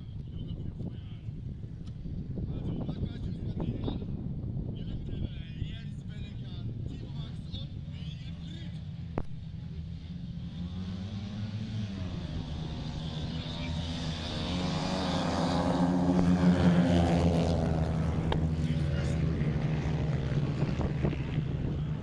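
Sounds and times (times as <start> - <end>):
racing motorcycles passing by: 6.0 - 22.0.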